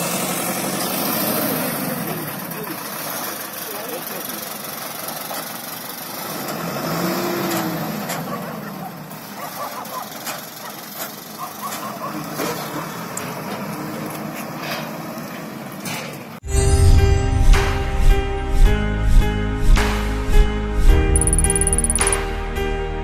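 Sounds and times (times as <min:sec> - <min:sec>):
lorry engine running: 0:00.0 - 0:15.8
steady outdoor noise: 0:00.0 - 0:16.4, 0:21.2 - 0:22.3.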